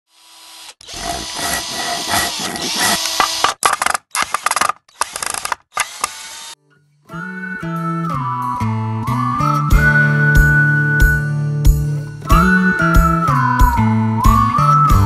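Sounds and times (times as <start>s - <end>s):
short chopped mechanical bursts: 0.6s - 6.6s.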